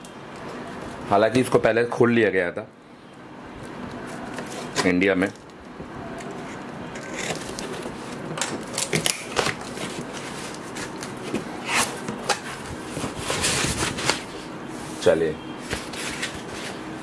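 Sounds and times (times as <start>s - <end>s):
packing tape tearing: 6.2s - 14.3s
cardboard rustling: 6.2s - 14.5s, 15.6s - 17.0s.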